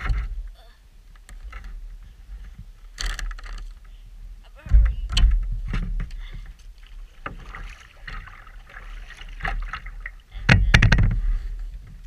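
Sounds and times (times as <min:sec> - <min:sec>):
paddle splashing in water: 0:06.8 - 0:10.9.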